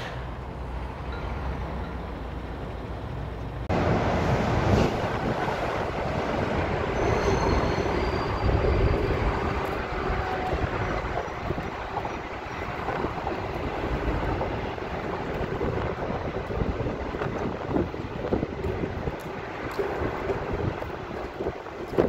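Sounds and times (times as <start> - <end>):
traffic rumble: 0.0 - 22.0
traffic rushing under an overpass: 0.0 - 22.0
faint high squeals: 6.8 - 12.2.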